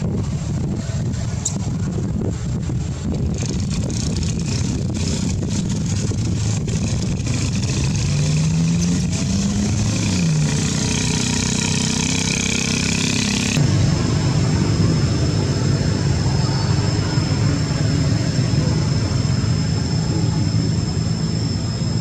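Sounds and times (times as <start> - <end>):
engine running: 0.0 - 22.0.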